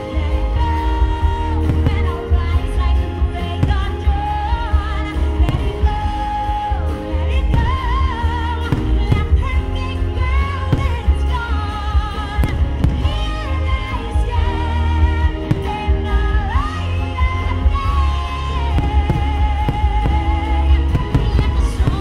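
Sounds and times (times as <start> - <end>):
pop show music with singing: 0.0 - 22.0
fireworks bursts thudding: 3.5 - 4.3, 5.4 - 6.3, 15.4 - 16.2, 18.7 - 22.0.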